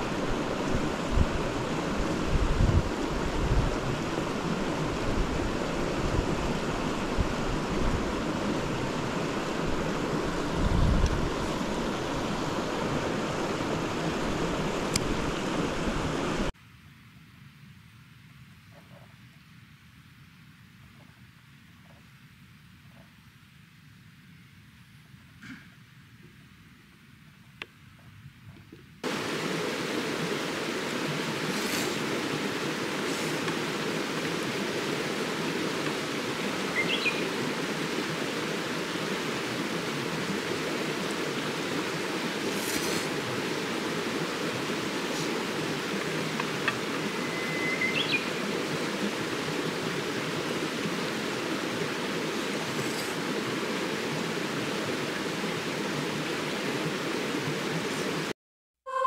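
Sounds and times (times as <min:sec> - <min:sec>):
mountain stream rushing: 0:00.0 - 0:16.6, 0:29.0 - 0:58.3
bird chirping: 0:36.8 - 0:37.3, 0:47.2 - 0:48.3.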